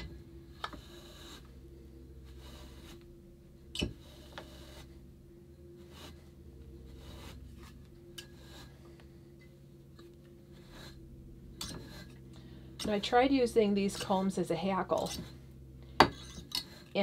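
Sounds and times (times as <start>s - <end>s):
low hum: 0.0s - 17.0s
comb tines scraping through wool: 0.6s - 3.1s, 4.0s - 5.0s, 5.7s - 8.9s.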